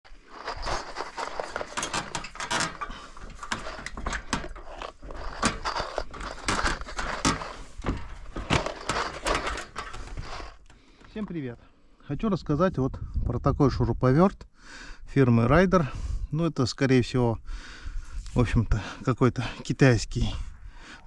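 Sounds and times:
climbing ladder knocks and creaks: 0.1 - 11.4.

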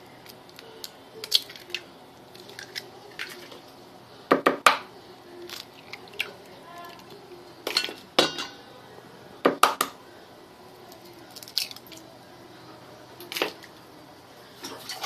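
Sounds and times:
eggs cracking against metal bowl: 0.2 - 3.6, 10.9 - 12.0.

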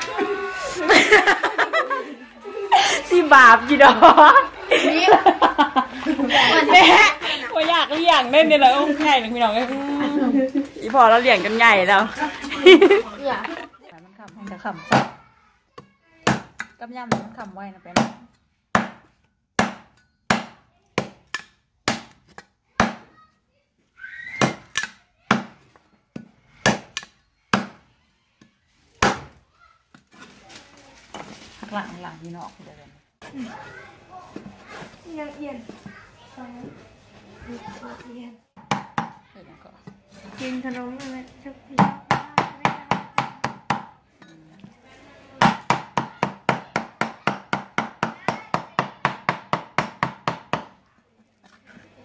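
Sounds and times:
cleaver chopping meat on wood: 18.0 - 19.0, 19.6 - 22.2, 26.2 - 27.8, 45.4 - 50.8.

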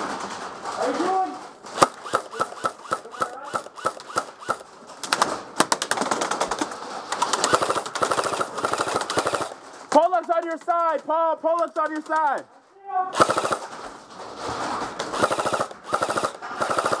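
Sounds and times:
airsoft rifles firing: 1.6 - 6.5, 7.2 - 9.7, 13.2 - 17.0.

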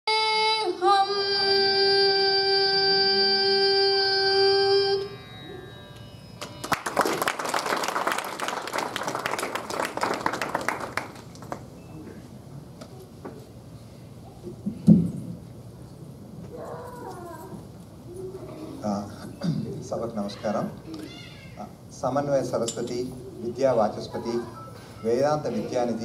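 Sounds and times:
woman singing long note: 0.1 - 5.3
audience applauding: 6.4 - 11.8.

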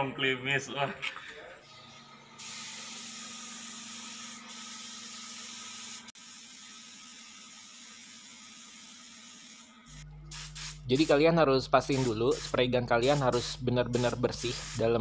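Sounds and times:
spray gun hissing: 2.4 - 11.2, 11.8 - 15.0.

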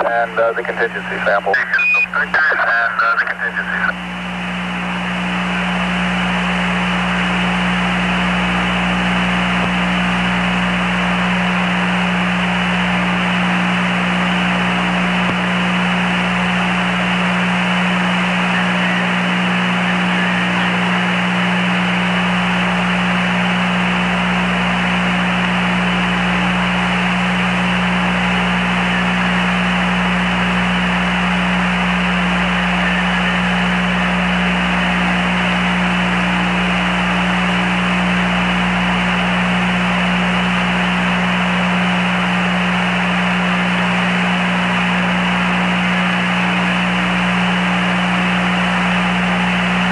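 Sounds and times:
radio hiss: 0.0 - 4.1, 13.9 - 49.3
constant low hum: 0.0 - 49.9.

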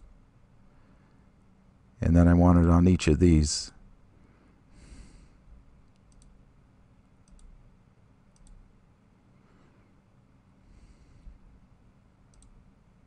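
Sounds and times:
low steady hum: 0.0 - 13.0
faint mouse clicks: 5.8 - 6.4, 7.2 - 7.6, 8.3 - 8.6, 12.3 - 12.6.

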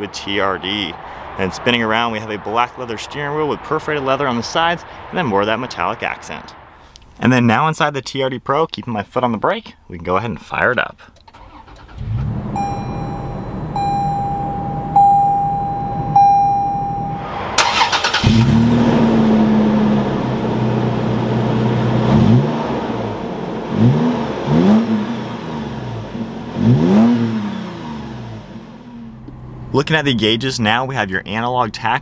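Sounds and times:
car engine starting and idling: 11.1 - 31.0
engine revving: 11.4 - 14.2, 17.2 - 29.8
warning chime dinging: 12.5 - 17.3.

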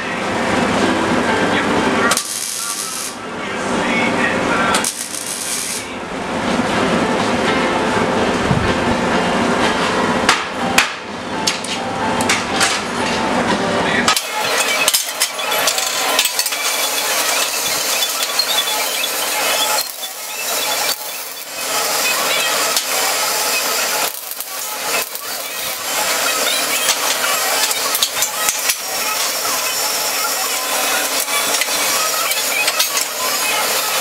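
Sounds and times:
welder crackling and hissing: 2.1 - 3.2, 4.7 - 5.9, 14.1 - 34.0.

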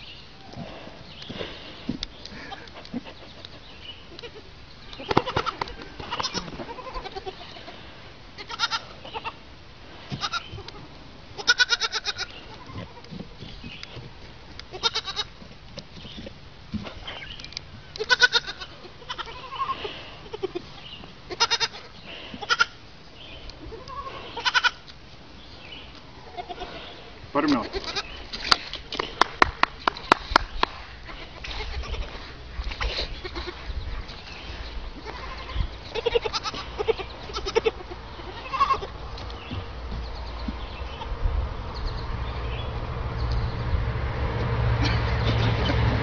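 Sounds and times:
young goats bleating: 3.9 - 9.4, 10.1 - 13.4, 14.7 - 15.4, 17.8 - 22.8, 23.5 - 24.9, 26.2 - 28.3, 31.0 - 39.6, 40.2 - 41.2.

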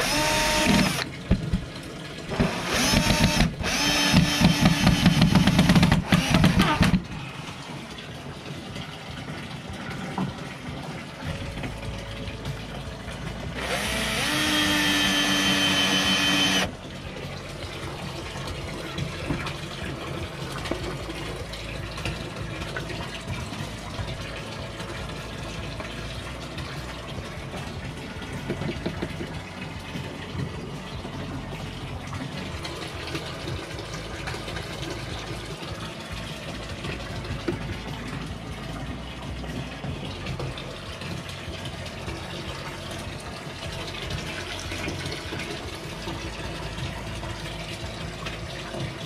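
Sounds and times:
drill driving screw into wood: 0.0 - 1.1, 2.3 - 7.0, 13.6 - 16.7.

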